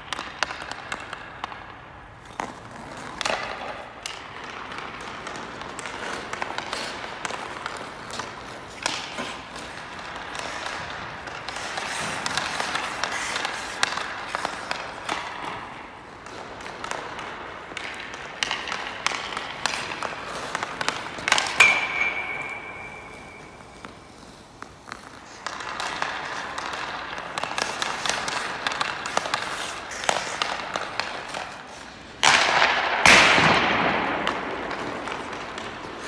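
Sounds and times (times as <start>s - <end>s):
skate blades scraping ice: 0.0s - 36.0s
stick clacking on pucks: 0.0s - 36.0s
puck clanging off metal post: 21.2s - 23.6s.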